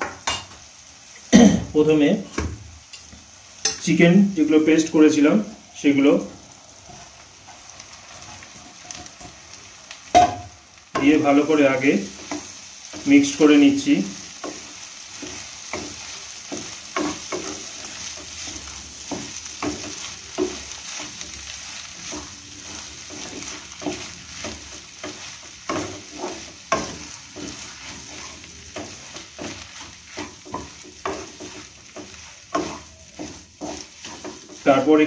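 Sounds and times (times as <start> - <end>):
chicken sizzling in oil: 0.0 - 35.0
spatula scraping a frying pan: 6.8 - 9.5, 11.0 - 35.0.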